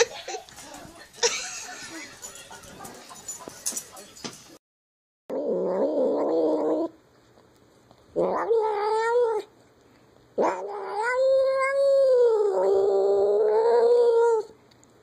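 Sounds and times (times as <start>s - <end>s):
cat yowling: 10.4s - 14.5s.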